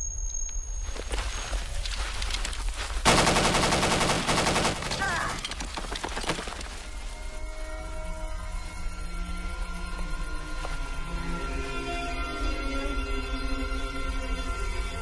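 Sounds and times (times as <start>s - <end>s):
machine gun burst: 3.0s - 5.6s.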